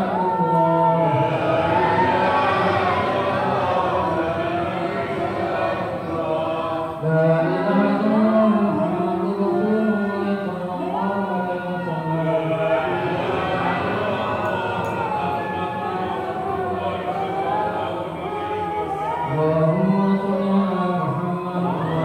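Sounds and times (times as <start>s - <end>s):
low male voice chanting: 0.0s - 22.0s
male voices chanting a prayer: 0.0s - 22.0s.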